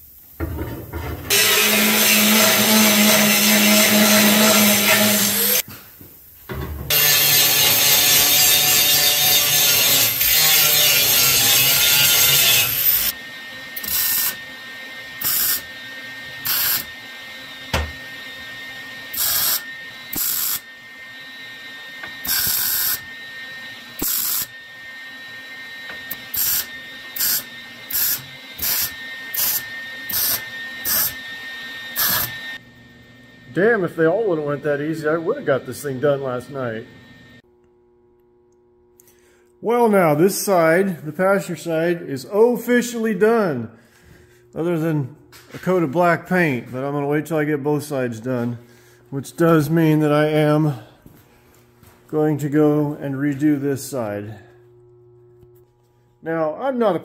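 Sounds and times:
angle grinder whining: 1.3s - 5.7s, 6.9s - 37.4s
welder bursts: 1.3s - 5.8s, 6.9s - 13.2s, 13.8s - 32.6s.

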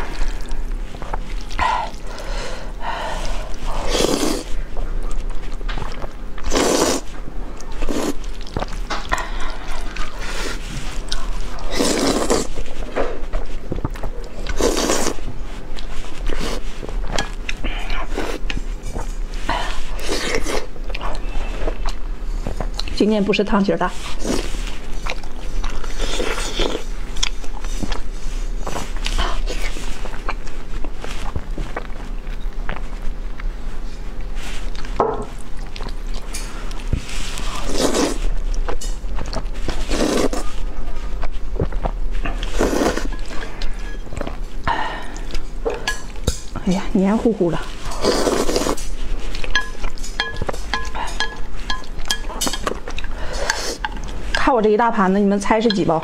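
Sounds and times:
wet chewing: 0.0s - 23.0s, 23.9s - 46.8s, 47.5s - 56.0s
noodle slurping: 3.0s - 4.6s, 6.4s - 7.1s, 9.2s - 12.6s, 47.8s - 48.9s.

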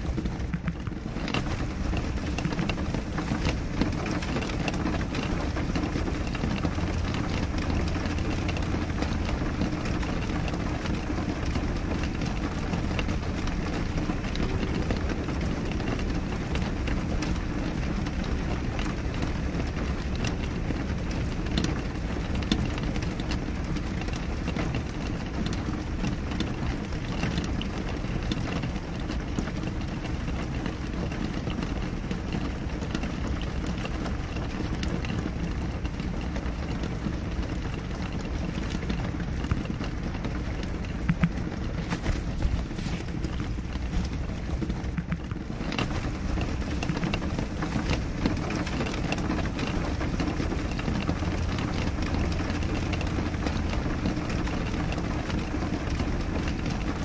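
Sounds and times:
rain on a window: 0.0s - 57.0s
raindrops ticking on glass: 0.0s - 57.0s.

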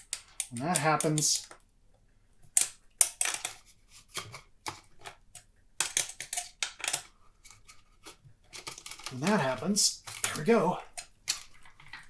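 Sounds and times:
metallic clicks and scrapes: 3.0s - 12.0s.

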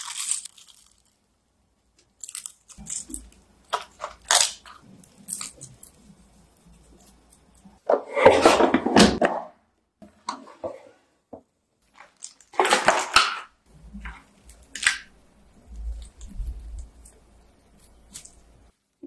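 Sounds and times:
aluminium foil crinkling: 0.0s - 1.3s, 2.0s - 7.8s, 11.9s - 18.7s.

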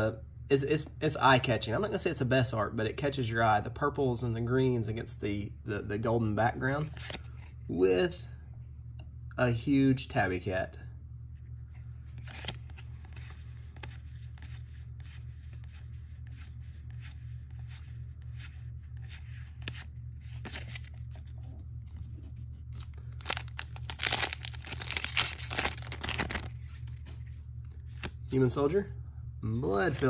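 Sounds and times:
steady low hum: 0.0s - 30.0s
cards rustling in hand: 6.8s - 7.8s, 11.4s - 28.3s
foil wrapper tearing: 22.8s - 26.6s.

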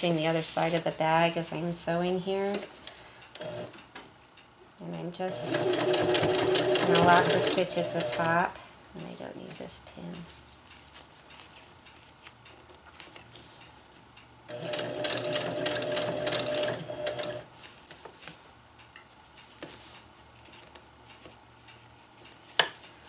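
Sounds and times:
nylon fabric rustling: 0.0s - 1.6s
electric sewing machine running: 3.4s - 3.7s, 5.3s - 8.4s, 14.5s - 17.4s.

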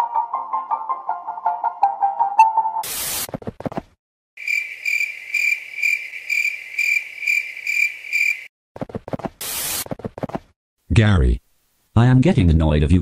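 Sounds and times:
music: 0.0s - 2.8s
crickets chirring: 4.4s - 8.5s
burst of static noise: 9.4s - 9.8s.

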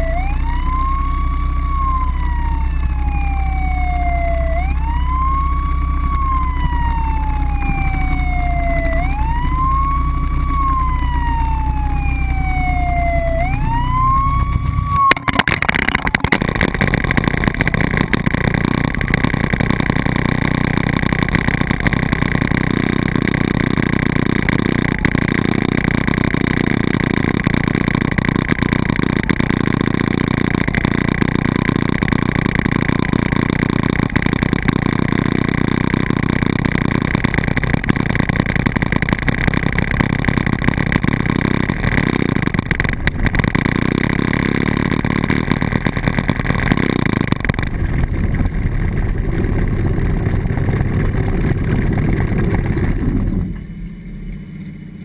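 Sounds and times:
rushing crackling noise: 0.0s - 54.0s
low steady hum: 0.0s - 55.0s
motorcycle siren wailing: 0.0s - 55.0s.

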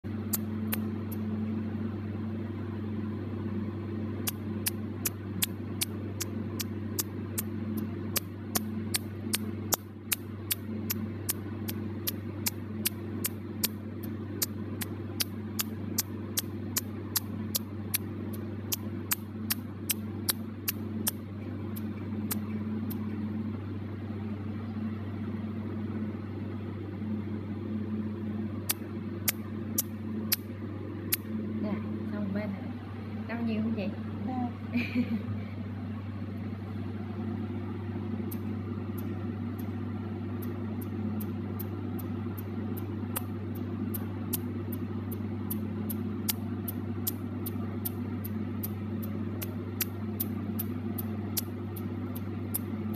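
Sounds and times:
steady low hum: 0.0s - 52.9s
laser sharp snapping clicks: 0.3s - 1.2s, 4.2s - 13.8s, 14.4s - 21.2s, 28.7s - 30.5s, 40.4s - 52.7s.

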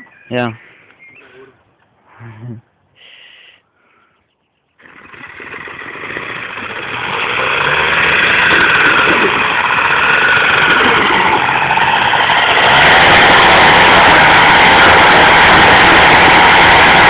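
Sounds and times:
two-stroke moped engine running: 4.8s - 17.0s.

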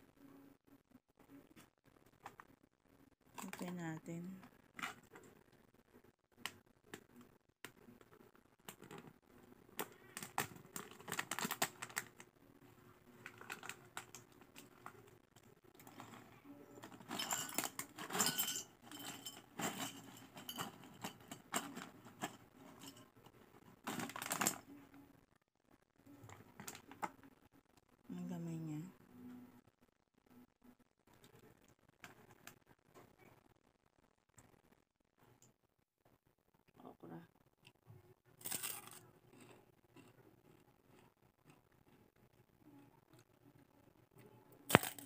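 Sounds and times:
foil pouch crinkling: 9.8s - 12.3s, 13.2s - 15.0s, 23.8s - 24.6s
chips clattering onto ceramic plate: 38.4s - 39.5s, 44.7s - 45.0s.

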